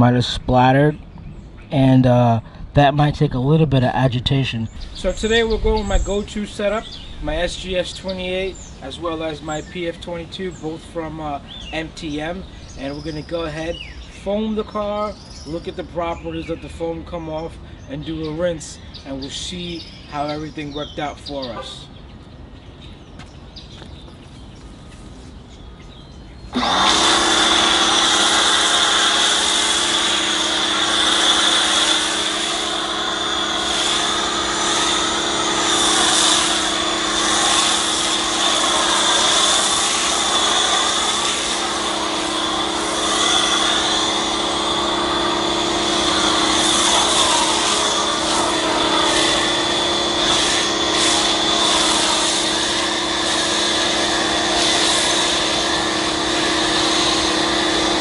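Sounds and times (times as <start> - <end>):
foam cannon hissing: 4.7 - 13.8, 26.5 - 58.0
pressure washer running: 4.8 - 17.5, 26.5 - 58.0.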